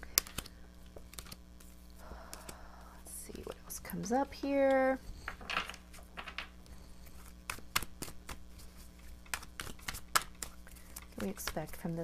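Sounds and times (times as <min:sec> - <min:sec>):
cards being shuffled: 0:00.0 - 0:02.6, 0:05.3 - 0:12.0.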